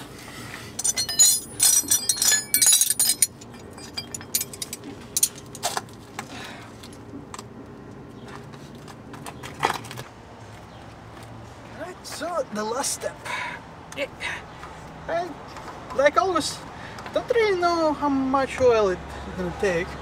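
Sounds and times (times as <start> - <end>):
metal wrenches clinking: 0.7 - 5.8.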